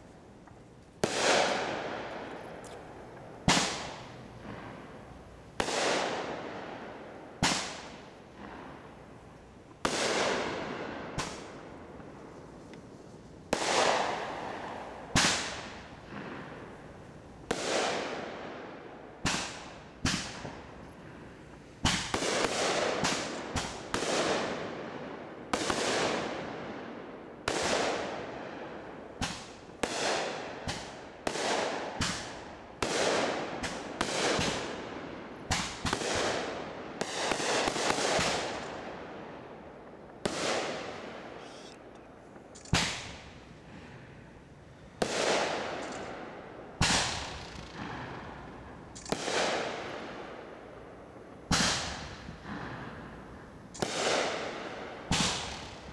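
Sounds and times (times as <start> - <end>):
fireworks bursting with sharp bangs: 1.0 - 55.9.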